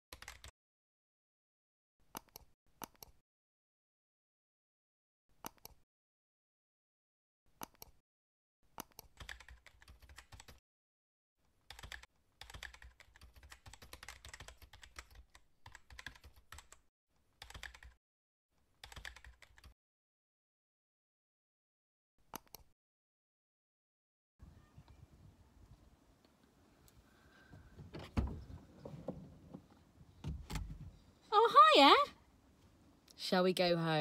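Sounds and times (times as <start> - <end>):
keyboard typing: 0.1 - 0.5, 8.8 - 10.6, 11.7 - 16.8, 17.4 - 18.0, 18.8 - 19.8.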